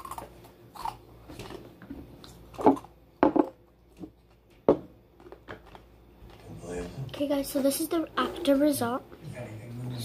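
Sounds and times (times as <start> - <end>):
objects knocking and bumping: 2.6 - 5.9.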